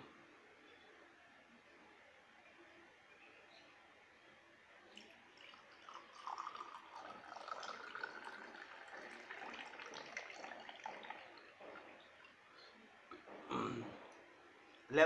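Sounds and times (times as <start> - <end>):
juice pouring into a glass: 4.9 - 12.6.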